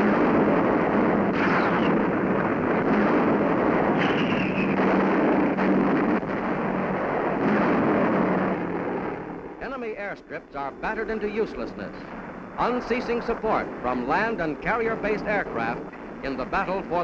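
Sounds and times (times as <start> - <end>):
bomb explosions rumbling: 0.0 - 17.0
steady low drone: 0.0 - 17.0
high falling whistle: 4.0 - 4.8.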